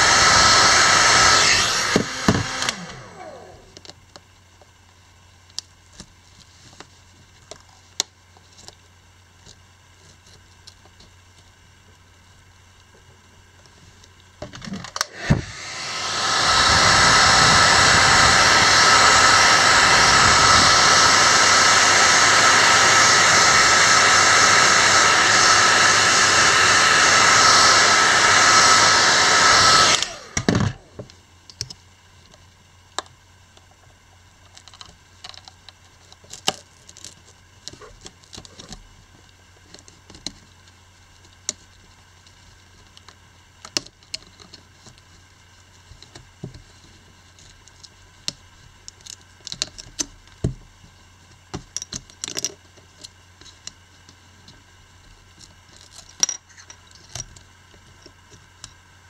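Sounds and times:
hair dryer running: 0.0 - 3.8, 15.0 - 31.1.

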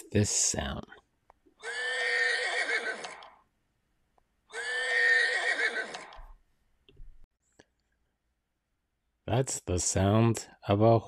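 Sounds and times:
horse neighing: 1.6 - 3.4, 4.5 - 6.1.

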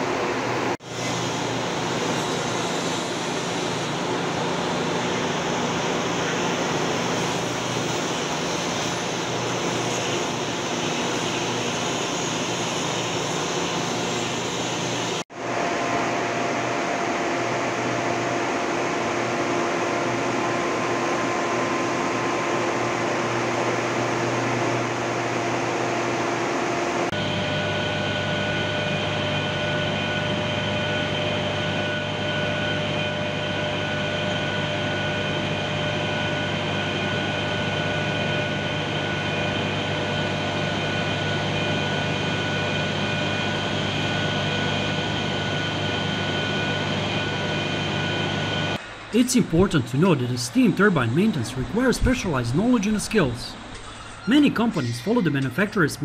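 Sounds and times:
machinery drone with whining tones: 27.0 - 56.0
industrial ventilation hiss and hum: 48.4 - 56.0.

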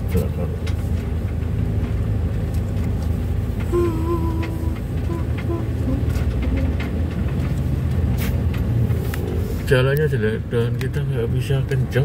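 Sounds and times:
engine and road rumble: 0.0 - 12.0
vehicle body rattles and knocks: 0.0 - 12.0.

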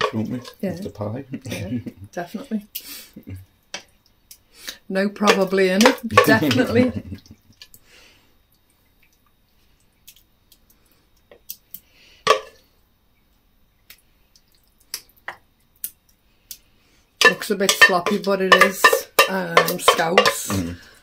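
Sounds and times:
stew dolloping: 0.0 - 7.9, 17.2 - 21.0
wooden spoon tapping saucepan: 5.2 - 6.9, 12.3 - 12.6, 17.2 - 20.8.

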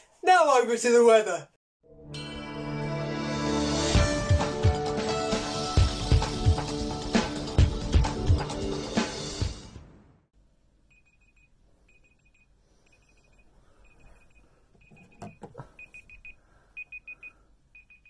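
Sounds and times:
music: 1.8 - 10.2
phone alarm beeping: 10.9 - 18.0.

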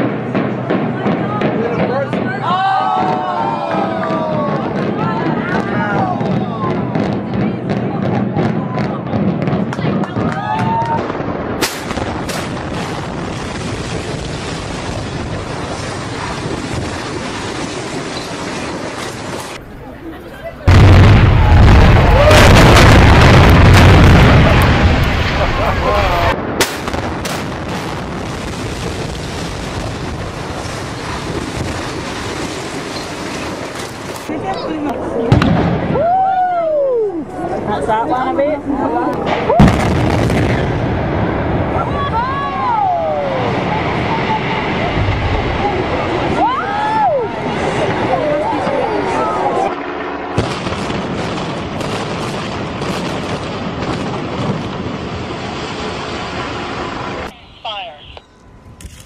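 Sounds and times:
building collapsing rumble: 0.0 - 57.3
wind buffeting microphone: 0.0 - 57.3
sharp cracks: 9.7 - 19.6, 20.8 - 27.9
rumble of falling debris: 11.9 - 34.4.

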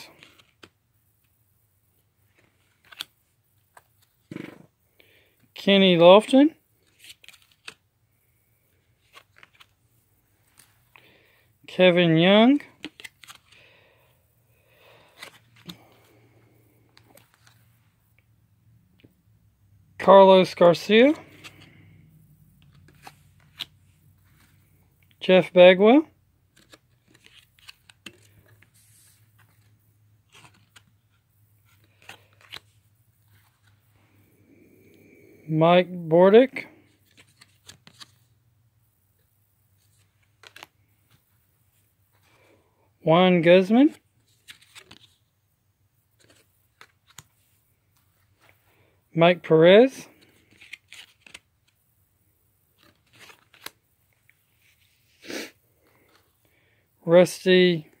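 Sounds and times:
cardboard cards clicking and rustling: 2.3 - 4.7, 6.8 - 7.8, 8.8 - 9.8, 12.7 - 13.6, 15.0 - 16.3, 22.6 - 24.8, 26.5 - 33.8, 36.9 - 38.2, 39.9 - 41.2, 44.3 - 45.2, 50.2 - 51.8, 52.8 - 53.8.

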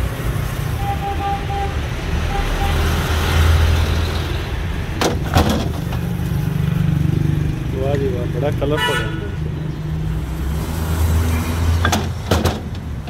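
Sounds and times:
motor vehicle rumbling past: 0.0 - 12.2
street traffic: 0.0 - 13.0.

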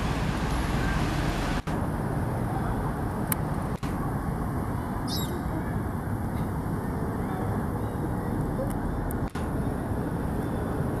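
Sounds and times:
rumbling outdoor background noise: 0.0 - 11.0.

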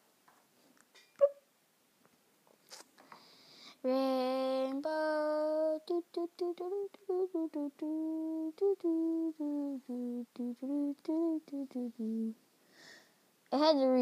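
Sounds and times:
person humming a tune: 3.9 - 12.4.

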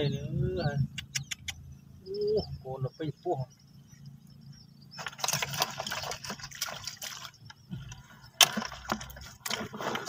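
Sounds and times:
shallow water splashing: 4.9 - 10.0.

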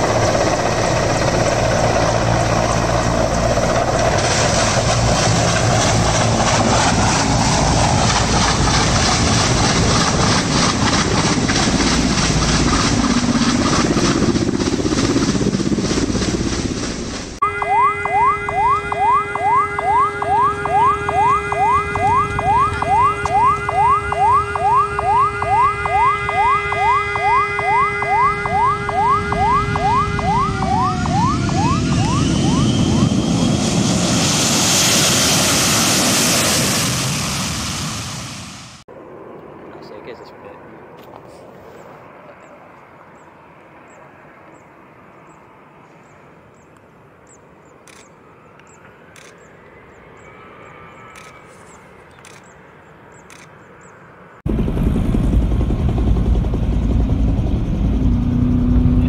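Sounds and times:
jet blast roar: 0.0 - 41.5
jet airliner engine whine: 0.0 - 46.6, 47.2 - 59.0
helicopter rotors and engines: 0.0 - 59.0.

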